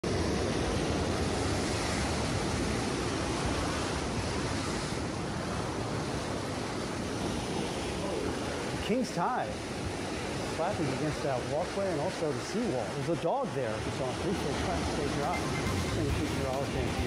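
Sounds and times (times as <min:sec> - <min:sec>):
wind on microphone: 0:00.0 - 0:08.8
surf washing over rocks: 0:00.0 - 0:17.0.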